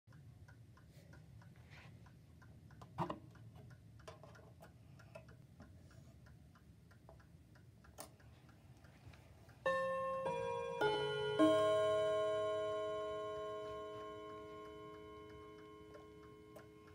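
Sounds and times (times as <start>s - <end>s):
mantel clock ticking: 0.1s - 16.9s
sharp clock hand click: 9.5s - 16.9s
clock chime ringing: 9.6s - 16.9s.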